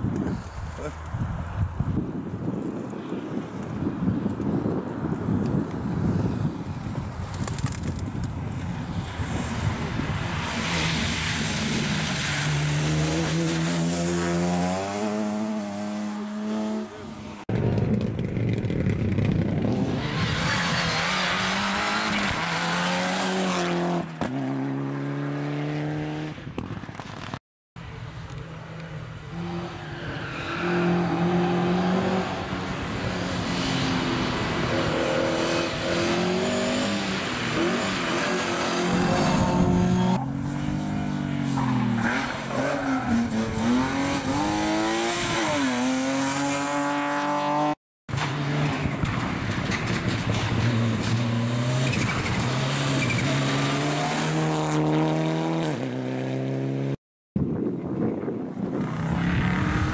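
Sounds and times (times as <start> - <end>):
car splashing through water: 10.4 - 14.4
rally car engines revving: 19.5 - 26.4, 28.8 - 57.0, 58.8 - 59.9.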